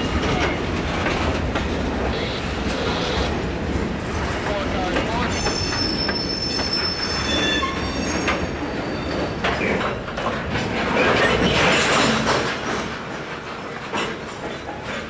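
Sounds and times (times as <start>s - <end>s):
freight train rumble: 0.0s - 15.0s
steel wheels squealing: 5.1s - 10.0s
wheels knocking over rail joints: 9.4s - 15.0s.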